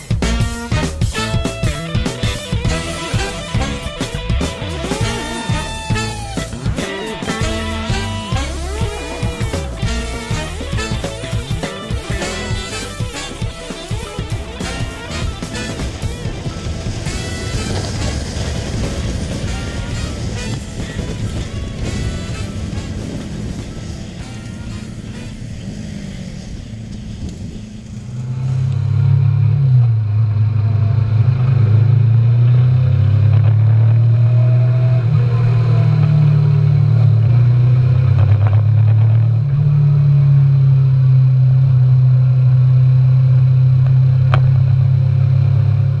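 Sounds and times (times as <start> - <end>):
motorcycle engine running: 0.0 - 46.0.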